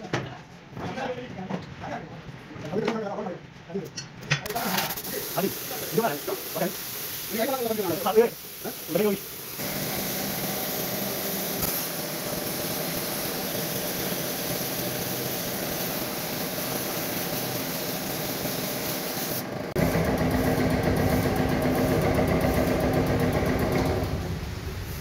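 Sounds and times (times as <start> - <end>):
machine humming: 19.5 - 24.9.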